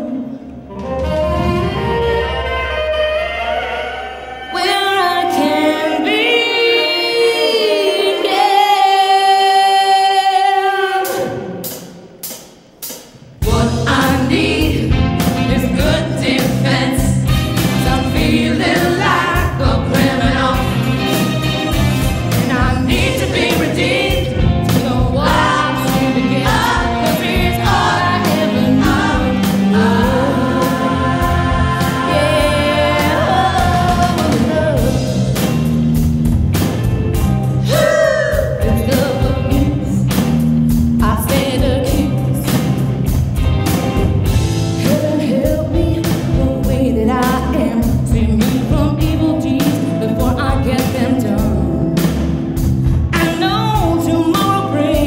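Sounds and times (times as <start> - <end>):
music with singing: 0.0 - 12.0, 13.2 - 36.1, 36.9 - 43.2, 43.9 - 55.0
steady drum beat: 11.6 - 55.0.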